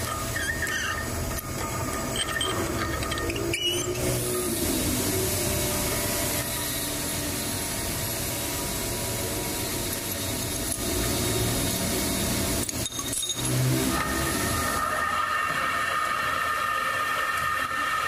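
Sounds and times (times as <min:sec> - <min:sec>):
lathe whining: 0:00.0 - 0:18.0
workshop machinery humming: 0:00.0 - 0:18.0.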